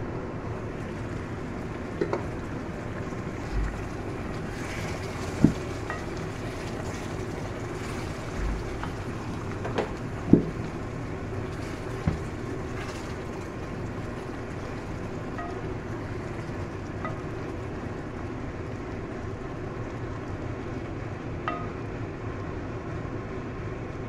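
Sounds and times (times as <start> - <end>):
curry bubbling in a pan: 0.5 - 22.2
wooden spatula knocking on pan: 21.5 - 21.8.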